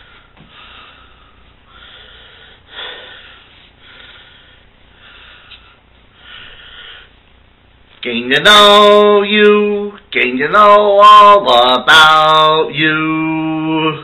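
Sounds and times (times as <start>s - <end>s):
person breathing: 0.0s - 7.2s.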